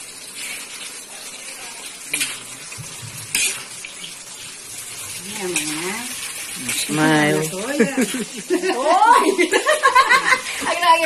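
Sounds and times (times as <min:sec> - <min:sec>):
vegetables sizzling in wok: 0:00.0 - 0:11.0
metal spatula stirring: 0:02.0 - 0:08.2
spatula clanking against pan: 0:02.1 - 0:03.7.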